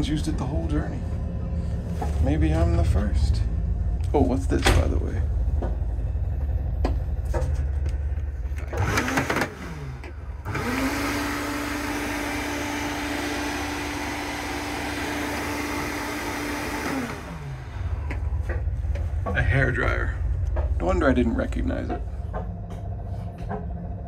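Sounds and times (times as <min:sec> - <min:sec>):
hairdryer motor hum: 0:08.6 - 0:18.6
hairdryer blowing air: 0:08.7 - 0:18.4.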